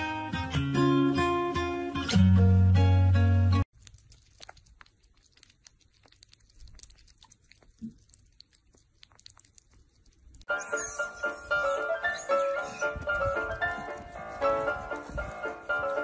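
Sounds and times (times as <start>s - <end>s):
music: 0.0s - 3.6s, 10.5s - 16.0s
animals licking and lapping food: 3.7s - 16.0s.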